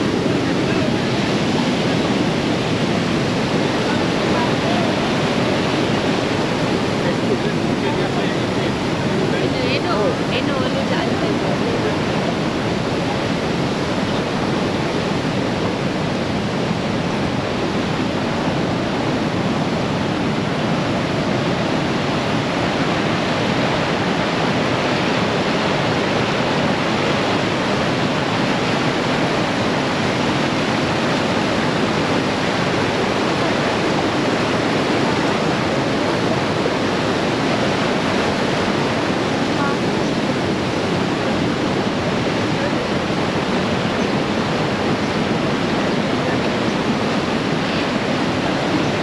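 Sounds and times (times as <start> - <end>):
waterfall rushing water: 0.0 - 49.0.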